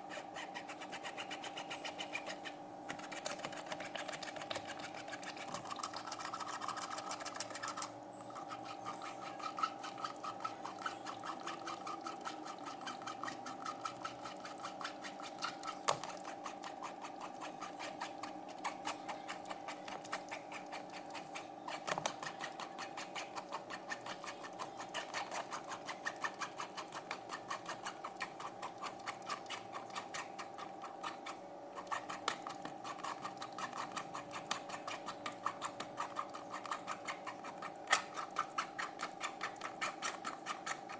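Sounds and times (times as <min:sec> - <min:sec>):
spoon scraping in sieve: 0:00.0 - 0:40.9
steady hum: 0:00.0 - 0:40.9.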